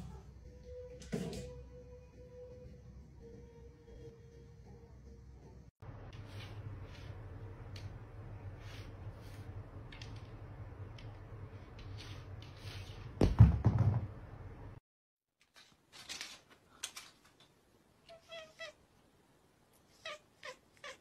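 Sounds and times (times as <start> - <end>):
low room hum: 1.6 - 14.8.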